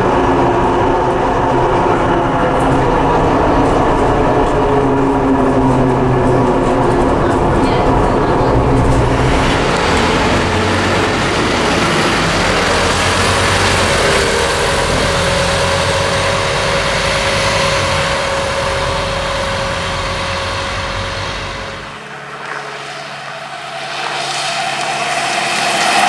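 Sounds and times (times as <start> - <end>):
bus engine and tyre noise: 0.0 - 26.0
steady whine: 0.0 - 26.0.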